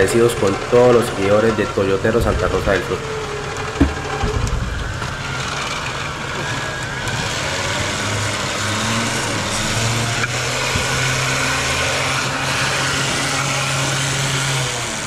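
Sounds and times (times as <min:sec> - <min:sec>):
car engine running: 0:00.0 - 0:15.0.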